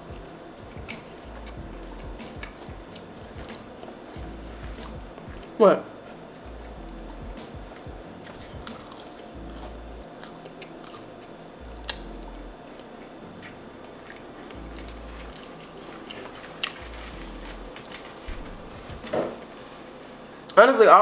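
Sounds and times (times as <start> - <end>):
chewing crunchy chicken nuggets: 0.1 - 5.0, 8.2 - 12.2.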